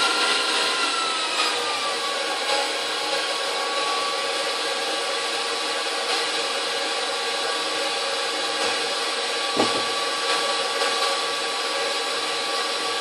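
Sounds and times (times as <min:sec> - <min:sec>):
stand mixer whisking: 0:00.0 - 0:13.0
short knock: 0:09.6 - 0:10.0.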